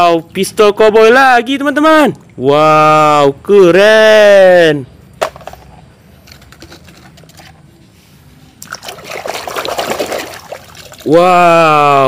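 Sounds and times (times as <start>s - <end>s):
hand splashing in muddy water: 8.6s - 11.1s.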